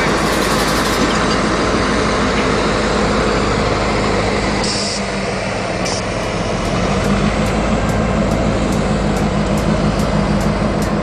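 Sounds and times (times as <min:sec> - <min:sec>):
diesel locomotive engine running: 0:00.0 - 0:11.0.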